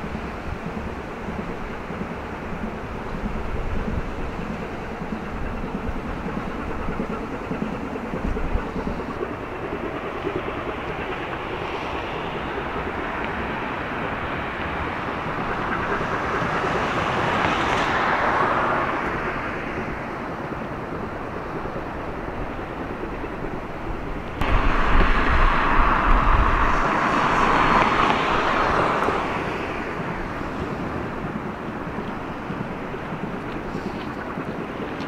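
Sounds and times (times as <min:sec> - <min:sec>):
wind buffeting microphone: 0:00.0 - 0:35.0
road traffic passing: 0:08.8 - 0:22.5, 0:24.0 - 0:35.0.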